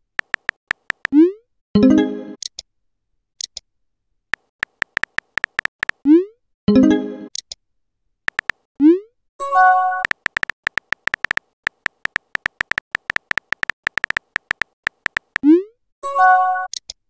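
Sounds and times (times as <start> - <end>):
keyboard tap clicks: 0.2 - 1.2, 4.4 - 6.0, 8.3 - 8.6, 10.0 - 15.4.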